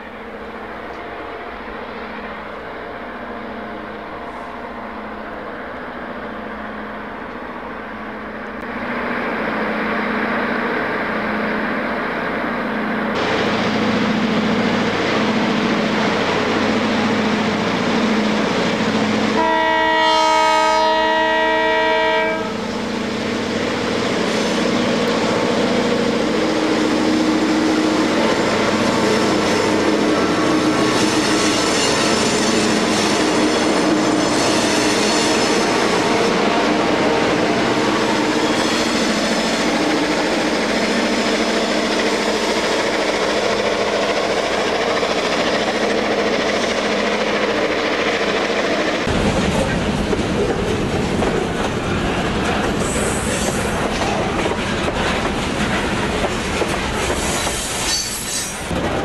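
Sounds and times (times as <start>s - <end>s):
pulsing diesel locomotive engine: 0.0s - 59.0s
multi-tone train horn: 19.2s - 22.8s.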